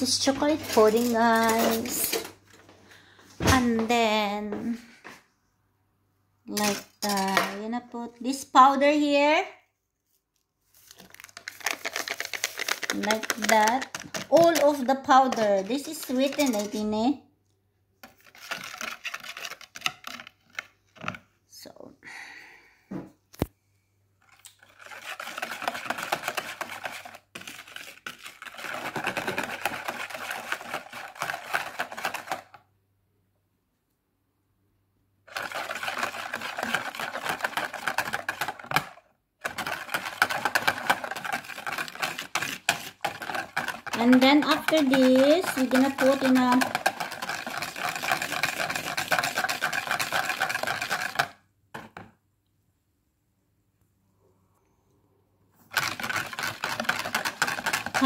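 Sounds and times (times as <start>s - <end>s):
whisk beating in plastic jug: 11.1s - 17.0s, 18.0s - 21.2s, 24.6s - 32.6s, 35.3s - 51.4s, 55.7s - 58.0s.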